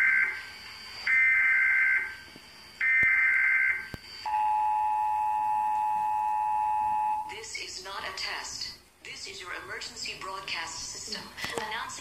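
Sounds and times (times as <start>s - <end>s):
two-tone attention signal: 2.9s - 7.3s.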